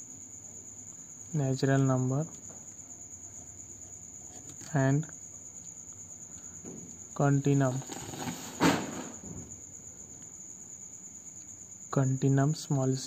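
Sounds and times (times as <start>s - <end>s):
crickets trilling: 0.0s - 13.0s
brief rustle: 7.7s - 9.1s.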